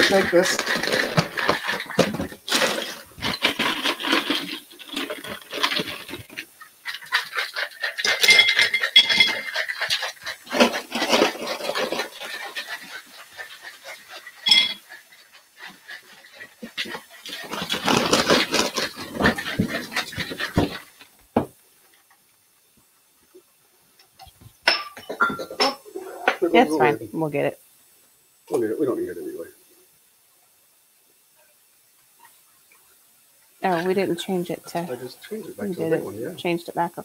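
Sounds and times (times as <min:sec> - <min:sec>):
ice rattling in cocktail shaker: 0:00.0 - 0:15.3, 0:16.7 - 0:21.0
metal clinks: 0:08.0 - 0:09.6, 0:14.4 - 0:14.8.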